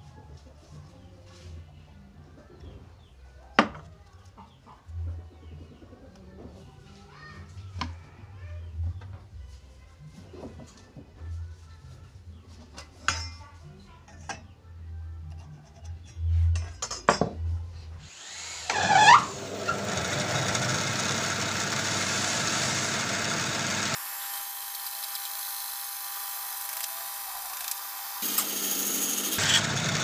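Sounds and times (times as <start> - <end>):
band saw cutting wood: 18.0 - 30.0.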